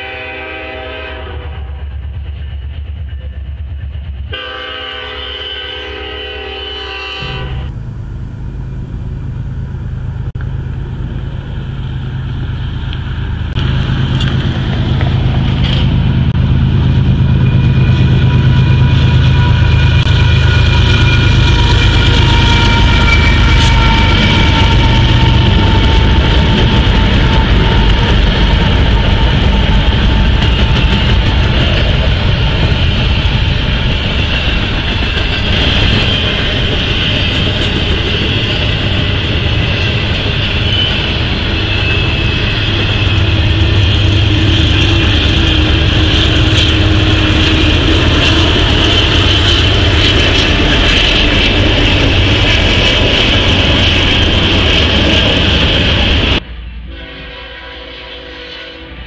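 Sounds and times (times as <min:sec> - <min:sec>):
train horn chord: 0:00.0 - 0:01.8, 0:04.3 - 0:09.0, 0:56.4 - 0:59.0
diesel locomotives passing: 0:00.0 - 0:59.0
freight cars rumbling and clattering: 0:07.3 - 0:56.4.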